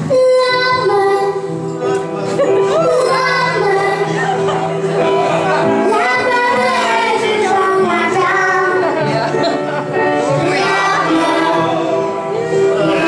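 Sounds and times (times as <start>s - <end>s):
girl singing into a microphone: 0.0s - 1.8s, 2.7s - 4.3s, 5.8s - 8.9s
instrumental backing music: 0.0s - 13.0s.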